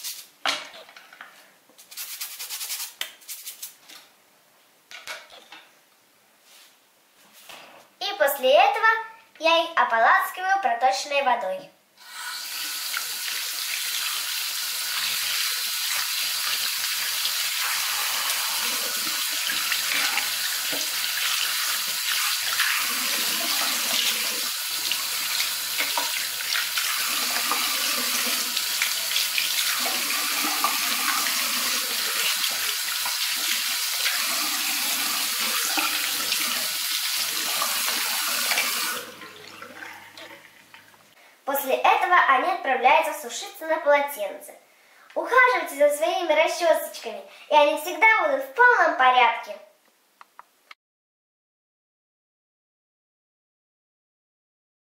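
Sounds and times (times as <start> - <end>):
tap water running into sink: 12.2 - 41.0
water splashing over brushes: 17.5 - 40.4.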